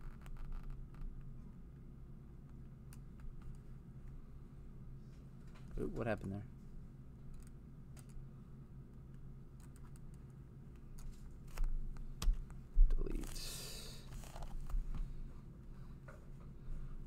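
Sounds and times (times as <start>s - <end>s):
steady low hum: 0.0s - 17.0s
keyboard and mouse clicks: 9.6s - 10.4s.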